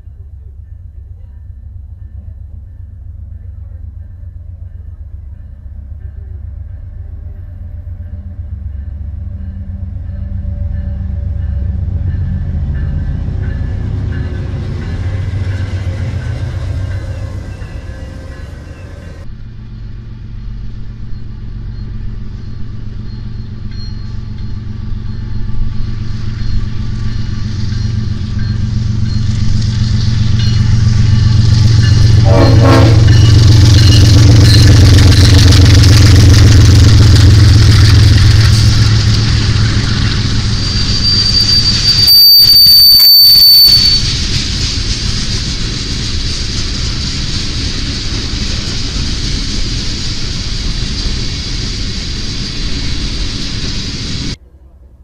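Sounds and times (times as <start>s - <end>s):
locomotive engine rumble: 0.0s - 55.0s
rail and wheel noise: 0.0s - 55.0s
high-pitched squeal: 14.7s - 44.9s.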